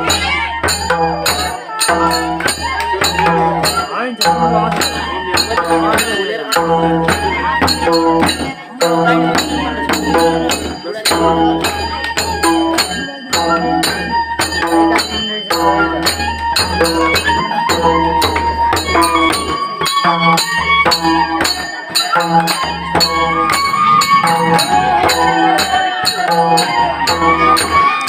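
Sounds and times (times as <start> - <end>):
hand drum fast rhythm: 0.0 - 28.0.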